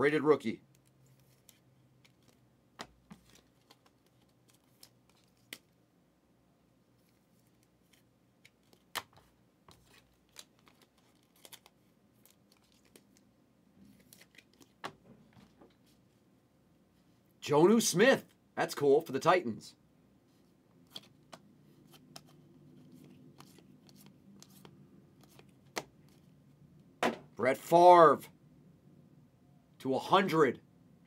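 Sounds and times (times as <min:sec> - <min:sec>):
cards flipping: 0:00.7 - 0:05.7, 0:07.0 - 0:13.2, 0:13.8 - 0:15.6, 0:20.8 - 0:26.3.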